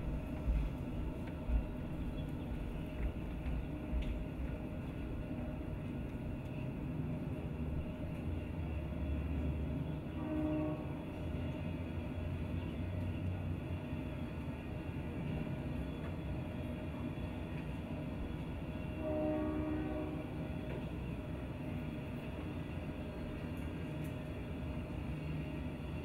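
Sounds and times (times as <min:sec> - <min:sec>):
horn-like pitched tone: 0:10.2 - 0:10.9, 0:19.0 - 0:20.3.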